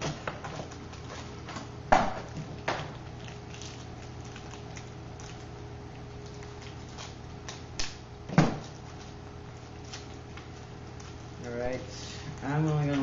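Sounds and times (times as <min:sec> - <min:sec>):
steady low hum: 0:00.0 - 0:13.0
plastic rustling: 0:02.6 - 0:05.6.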